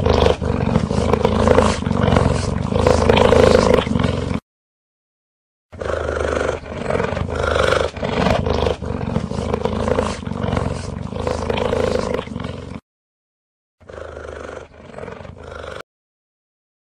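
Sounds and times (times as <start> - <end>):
cheetah vocalising: 0.0 - 4.4, 5.9 - 12.8.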